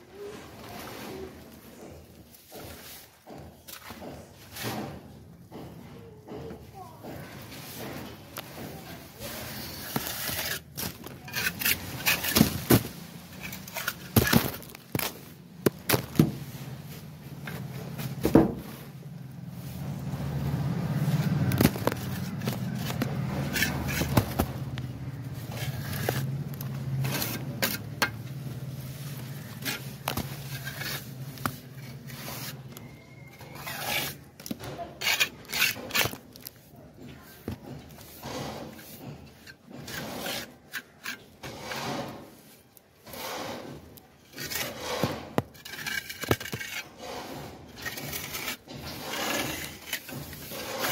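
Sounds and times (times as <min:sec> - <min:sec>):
hand tool scraping plaster: 0:05.9 - 0:15.1, 0:21.1 - 0:50.9.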